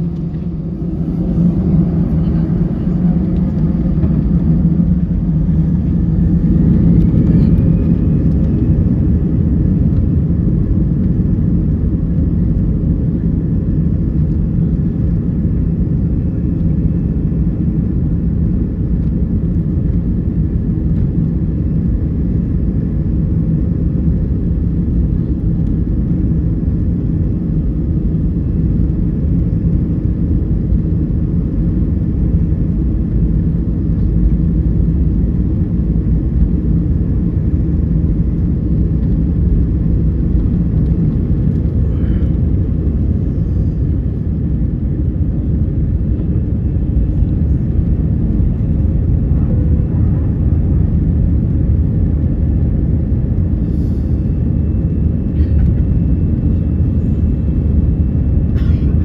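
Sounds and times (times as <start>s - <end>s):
faint rising whine: 0.0s - 9.5s
jet engines rumbling: 0.0s - 59.0s.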